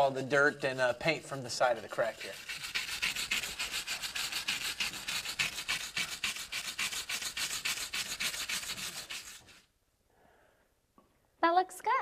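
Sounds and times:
wire brush scrubbing concrete: 0.0s - 9.7s.

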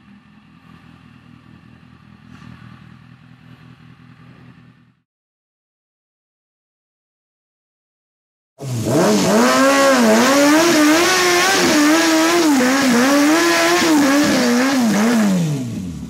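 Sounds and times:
motorcycle engine revving hard: 8.6s - 16.0s.

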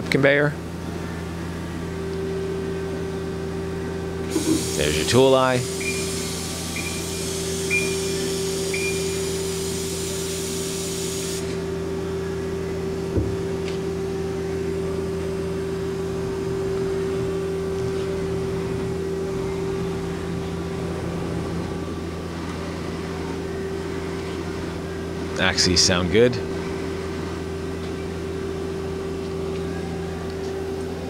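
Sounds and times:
machine hum: 0.0s - 31.0s
hiss: 4.3s - 11.6s
short high beeps: 5.7s - 9.2s
knock: 13.1s - 13.4s.

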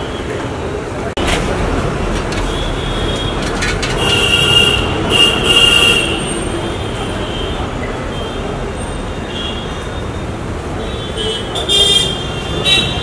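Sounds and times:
street traffic: 0.0s - 13.0s
metallic clatter: 1.2s - 5.0s.

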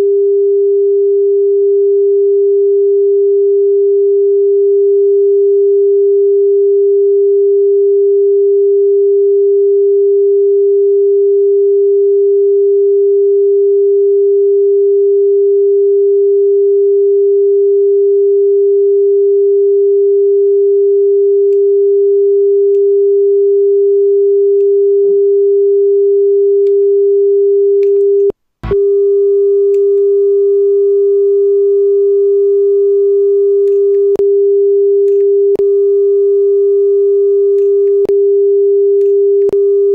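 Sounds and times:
click: 21.5s - 21.8s, 26.6s - 26.9s, 27.8s - 28.8s, 33.6s - 34.2s, 35.1s - 35.3s, 39.0s - 39.6s
steady test tone: 28.6s - 34.2s.

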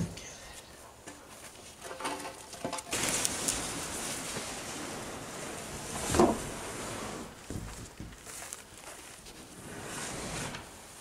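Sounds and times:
plastic tank scraping across boards: 2.9s - 7.9s, 9.5s - 10.8s
wooden boards knocking: 7.5s - 8.2s.

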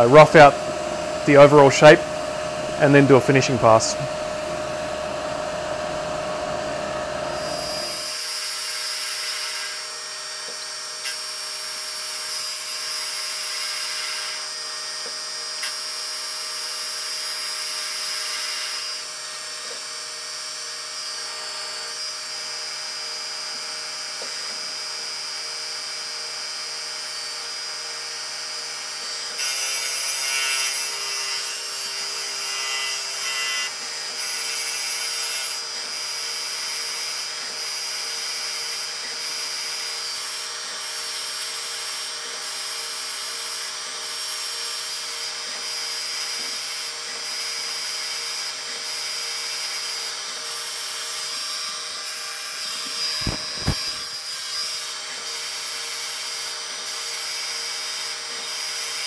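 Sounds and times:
lathe spindle whine: 0.0s - 8.3s
tool cutting and coolant hiss: 0.0s - 59.0s
short thumps: 53.2s - 54.1s.

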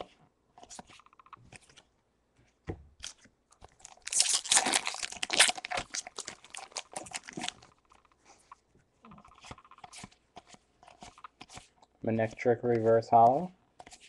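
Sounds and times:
foil wrapper crinkling and tearing: 3.0s - 7.7s.

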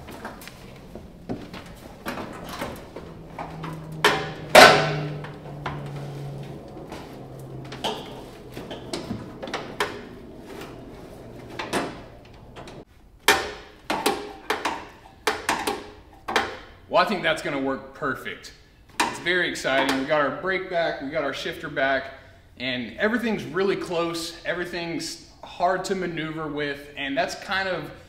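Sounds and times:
metal clunks and knocks: 0.0s - 16.7s
metal clang with short ring: 4.1s - 5.2s.

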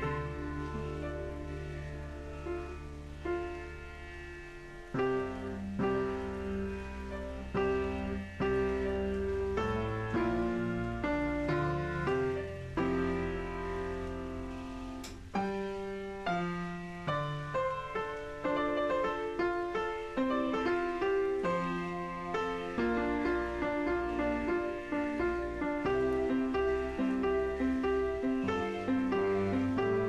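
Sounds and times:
low bass: 0.0s - 15.3s
gentle piano chords: 0.0s - 30.0s.

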